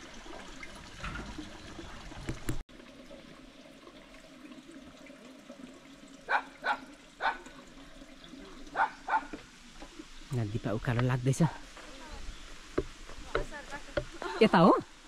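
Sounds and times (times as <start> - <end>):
water running from a tap: 0.0 - 15.0
dog barking: 6.3 - 7.5, 8.7 - 9.4.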